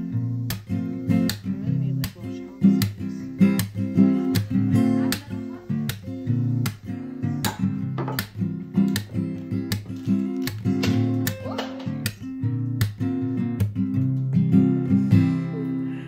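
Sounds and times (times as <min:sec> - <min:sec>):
acoustic guitar strumming: 0:00.0 - 0:16.0.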